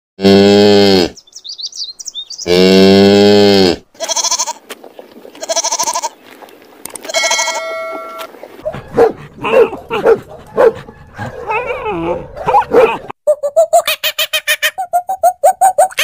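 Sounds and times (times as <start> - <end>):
faint bird chirps: 1.2 - 2.6
goat bleating: 2.8 - 4.7, 5.3 - 6.2, 7.0 - 8.2.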